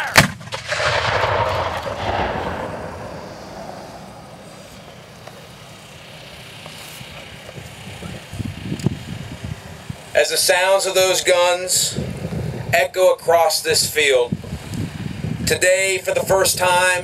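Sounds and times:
cannon blast with echo: 0.0 - 5.4.

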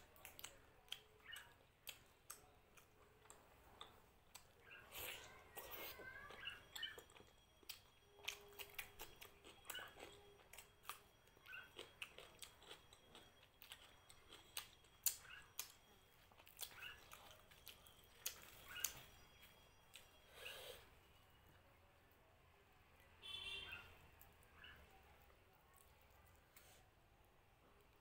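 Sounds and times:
wet chewing: 0.0 - 20.5.

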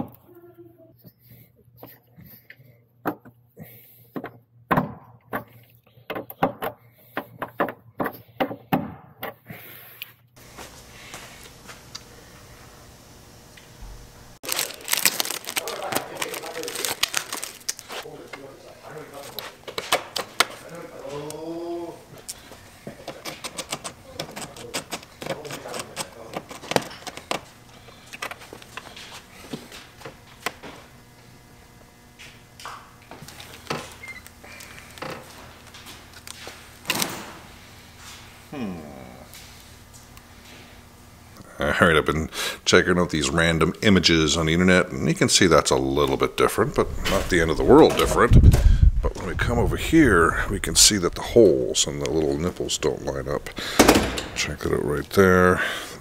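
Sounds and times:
fasteners clicking onto studs: 23.0 - 27.4.

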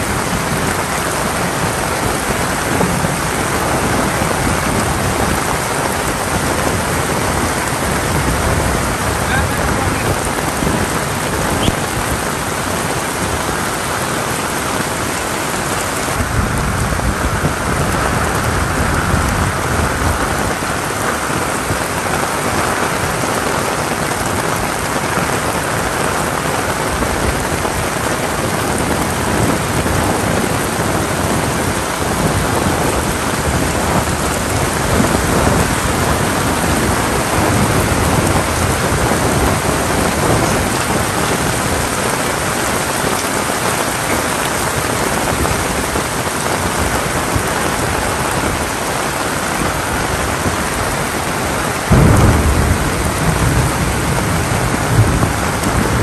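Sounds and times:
heavy rain pouring: 0.0 - 56.0
thunder rumbling: 0.0 - 56.0.

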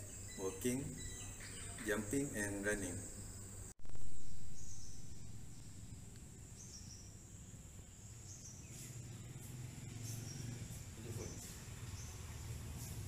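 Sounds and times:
high-pitched insect buzz: 0.0 - 13.0
low hum: 3.8 - 8.3.

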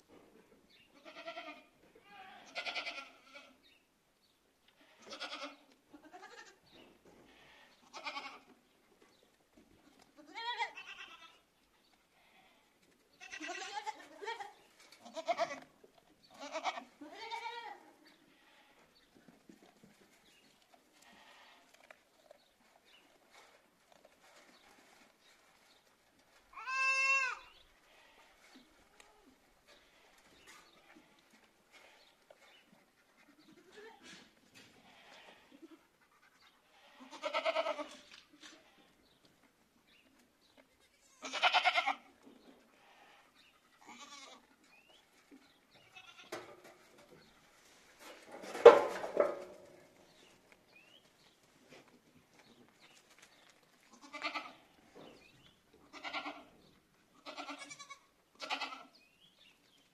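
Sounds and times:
young goats bleating: 0.9 - 3.6, 4.7 - 6.6, 7.2 - 8.6, 10.2 - 11.5, 12.1 - 19.0, 20.9 - 22.4, 26.4 - 32.0, 33.3 - 35.9, 36.6 - 39.0, 40.6 - 44.6, 45.8 - 46.5, 53.8 - 54.8, 55.7 - 59.0.

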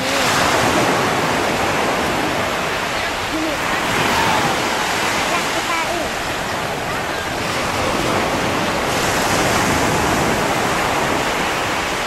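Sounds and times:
ocean waves rushing: 0.0 - 12.0.

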